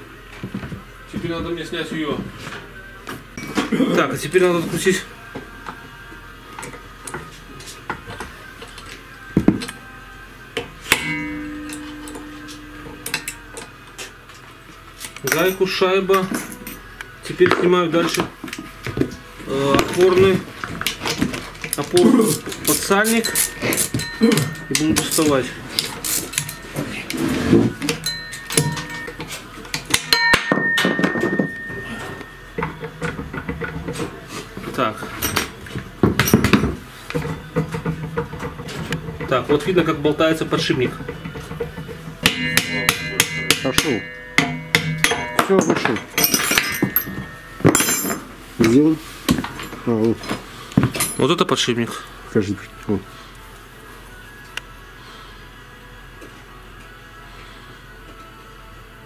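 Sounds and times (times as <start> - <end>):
tools knocking on metal parts: 10.6 - 13.7, 19.7 - 27.2, 27.8 - 34.1, 35.1 - 49.8
sharp ringing metal strike: 10.8 - 13.6, 23.0 - 25.6, 28.0 - 29.2, 29.9 - 32.7, 42.2 - 48.2
sharp metallic clang: 10.8 - 13.7, 27.9 - 29.2, 29.9 - 32.7, 42.2 - 48.3.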